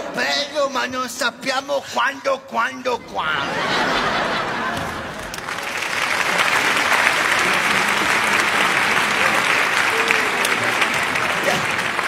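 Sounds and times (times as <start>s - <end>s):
audience applauding: 4.2s - 12.0s.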